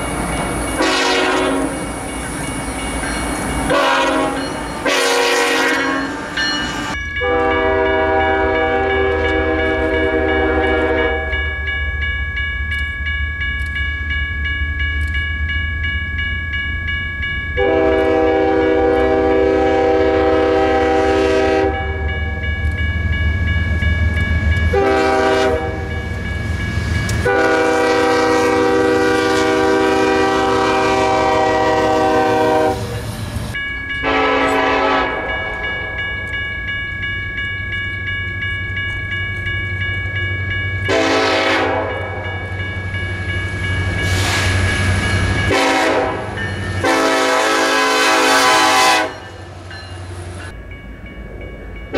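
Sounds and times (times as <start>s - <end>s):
locomotive air horn: 0.8s - 1.9s, 3.7s - 6.2s, 7.2s - 11.4s, 17.6s - 22.2s, 24.7s - 26.0s, 27.2s - 33.0s, 34.0s - 35.3s, 40.9s - 42.2s, 44.1s - 44.6s, 45.5s - 49.2s.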